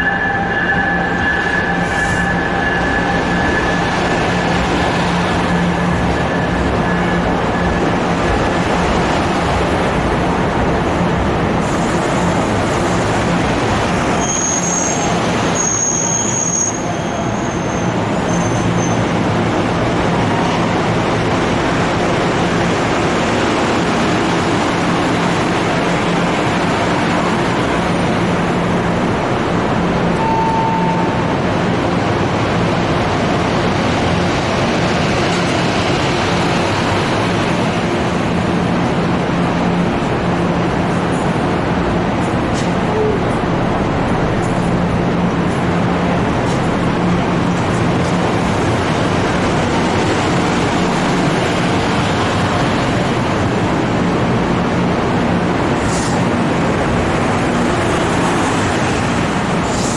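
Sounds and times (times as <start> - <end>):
high-pitched train squeals: 0.0 - 4.6, 5.4 - 8.0, 14.1 - 19.1, 30.2 - 31.3
train wheels rumbling on rail: 0.0 - 59.9.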